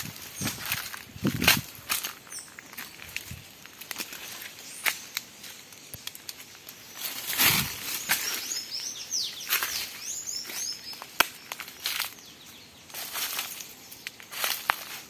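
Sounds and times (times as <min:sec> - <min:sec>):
footsteps crunching through dry leaves: 0:00.0 - 0:15.0
bird chirping: 0:02.0 - 0:03.3, 0:06.7 - 0:14.3.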